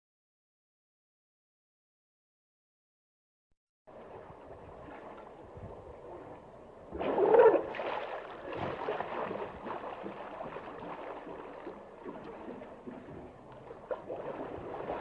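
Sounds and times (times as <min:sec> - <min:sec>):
hippo sloshing and gurgling in water: 0:03.9 - 0:15.0.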